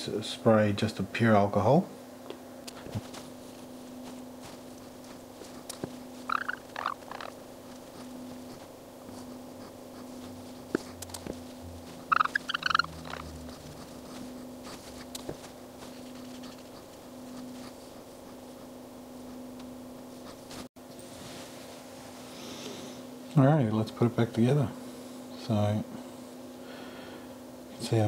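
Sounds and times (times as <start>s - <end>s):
low steady hum: 0.0s - 28.0s
cotton squeaking on glass: 6.2s - 7.4s, 12.0s - 13.7s.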